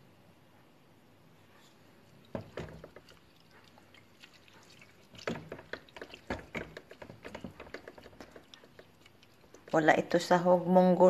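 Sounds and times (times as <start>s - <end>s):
liquid sloshing in pot: 1.6s - 10.2s
spoon knocking metal pot: 5.2s - 9.0s.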